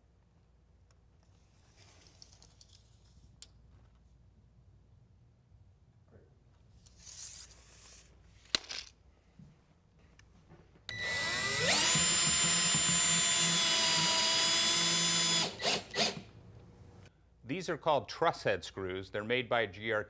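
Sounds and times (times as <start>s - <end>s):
cordless drill driving screw: 10.9s - 16.3s.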